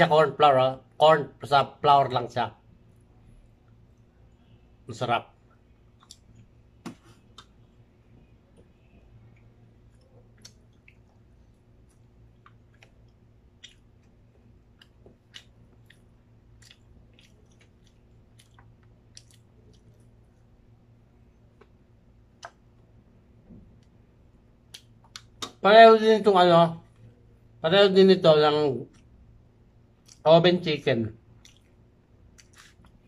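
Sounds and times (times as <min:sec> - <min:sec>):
steady low hum: 0:00.0 - 0:33.0
quiet chewing: 0:05.4 - 0:23.0, 0:28.8 - 0:30.2, 0:31.2 - 0:33.0
mouth clicks and smacks: 0:05.8 - 0:07.7, 0:08.5 - 0:20.5, 0:21.4 - 0:22.9, 0:24.6 - 0:25.6, 0:29.9 - 0:30.2, 0:31.2 - 0:33.0.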